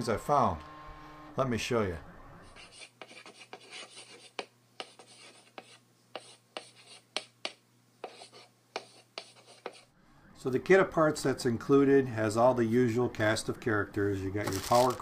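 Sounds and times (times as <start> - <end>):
chalk tapping and scratching: 2.6 - 9.9.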